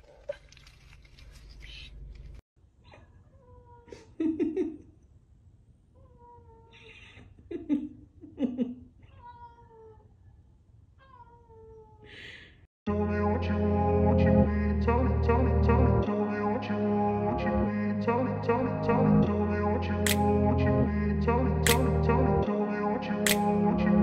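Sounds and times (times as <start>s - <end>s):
cat meowing: 6.0s - 6.9s, 9.1s - 10.1s, 11.0s - 12.0s
music: 12.9s - 24.0s.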